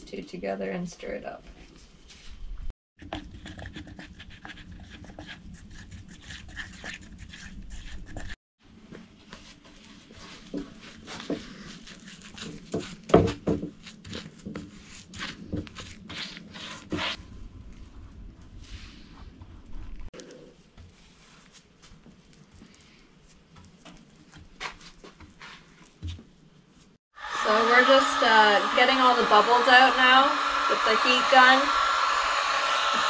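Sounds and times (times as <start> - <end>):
brush scraping and dabbing: 3.0 - 8.4, 9.2 - 27.0.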